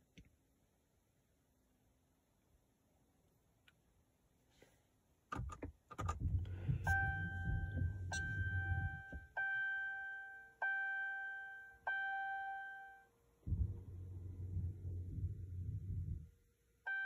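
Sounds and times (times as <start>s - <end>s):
ignition clicks: 5.3s - 9.4s
low rumble: 6.1s - 9.2s, 13.4s - 16.5s
dashboard warning chime: 6.4s - 16.2s.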